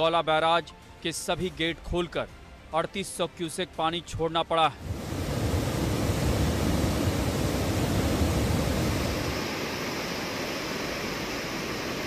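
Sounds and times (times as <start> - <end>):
low water rumble: 4.8 - 12.0.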